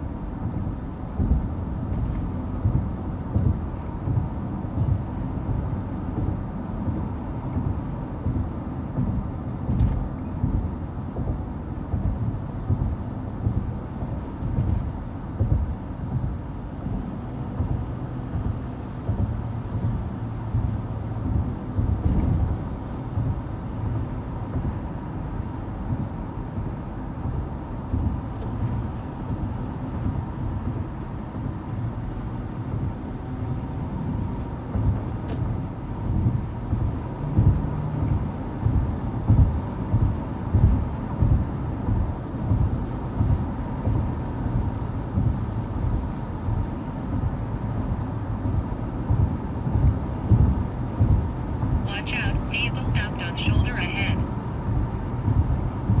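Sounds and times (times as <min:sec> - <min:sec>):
car road and engine rumble: 0:00.0 - 0:56.0
faint steady hum: 0:51.8 - 0:54.3.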